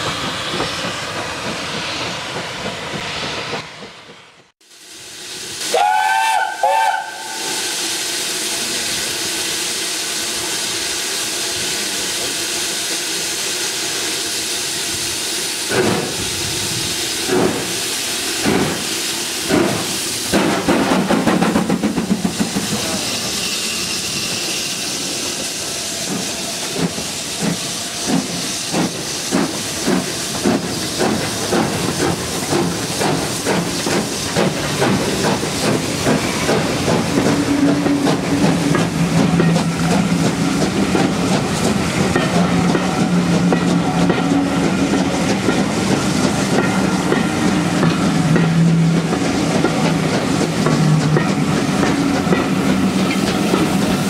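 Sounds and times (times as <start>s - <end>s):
train coaches rumbling: 0.0s - 4.5s, 5.3s - 54.0s
steam hissing: 0.0s - 54.0s
steam locomotive exhaust beats: 0.0s - 54.0s
steam whistle blasts: 5.6s - 8.7s.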